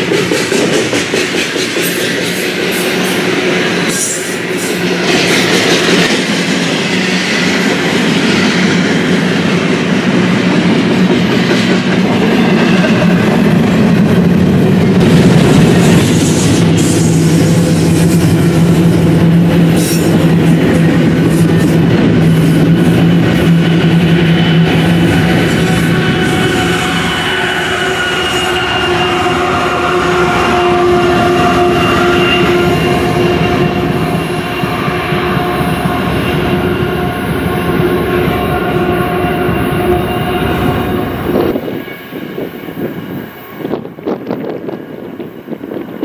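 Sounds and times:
rail cars clanking: 0.0s - 46.0s
train wheels rumbling on rail: 0.0s - 46.0s.

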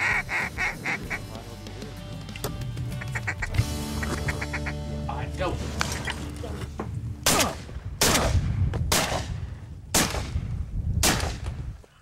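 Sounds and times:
shotgun shots with echo: 7.2s - 10.4s, 11.0s - 11.5s.

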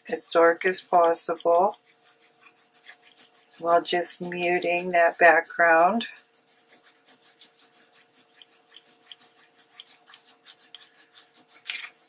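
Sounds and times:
cloth scrubbing paper: 0.0s - 12.0s.

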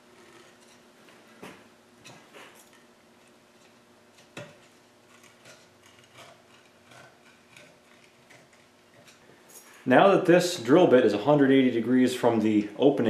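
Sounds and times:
metal tools clicking and scraping: 3.6s - 9.9s.

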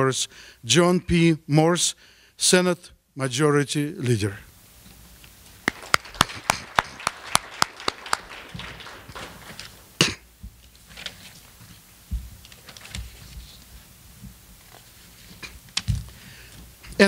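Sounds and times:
sharp hand claps: 5.6s - 10.2s
papers rustling: 5.7s - 9.9s.

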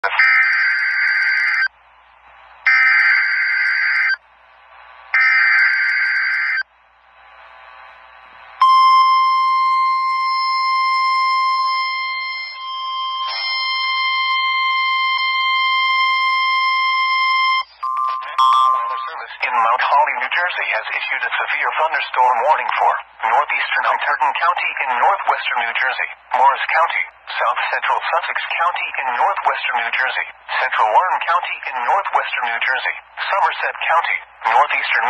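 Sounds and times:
steady high alarm tone: 0.0s - 1.7s, 2.6s - 4.2s, 5.1s - 6.7s, 8.6s - 19.4s.

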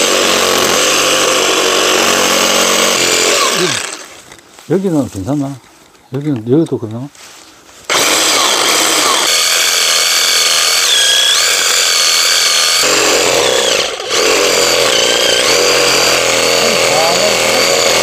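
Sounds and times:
reciprocating saw cutting wood: 0.0s - 4.2s, 7.9s - 18.0s.

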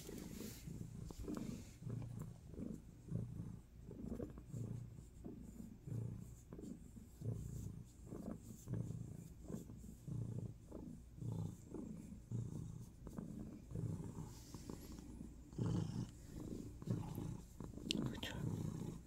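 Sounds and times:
cat purring: 0.0s - 19.0s.

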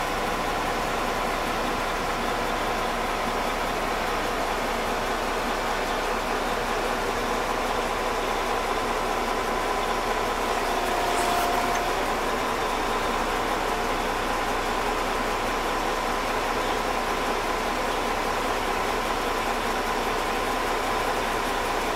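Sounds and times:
diesel engine running: 0.0s - 21.9s
faint whine: 10.1s - 12.5s.

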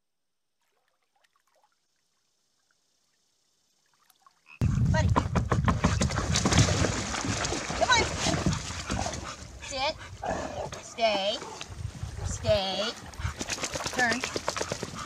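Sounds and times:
water splashing against kayak: 5.7s - 9.3s.

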